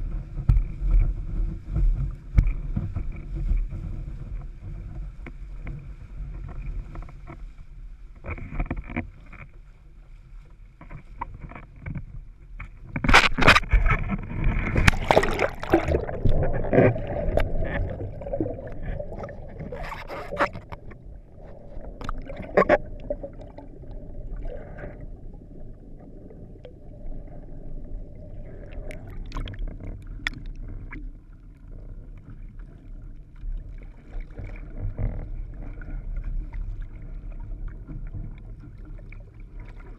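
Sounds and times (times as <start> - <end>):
wind rumble on microphone: 0.0 - 39.9
water splashing around board: 12.7 - 23.7, 28.8 - 31.2.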